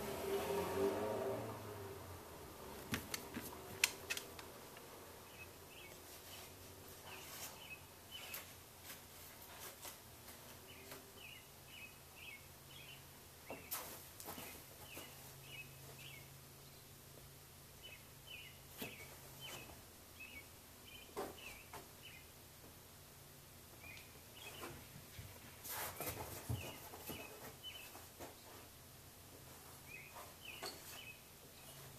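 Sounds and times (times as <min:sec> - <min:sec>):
sharp clicks: 0:02.9 - 0:04.5
bird chirping: 0:05.2 - 0:08.5, 0:10.6 - 0:17.0, 0:17.8 - 0:22.4, 0:23.7 - 0:28.6, 0:29.8 - 0:31.9.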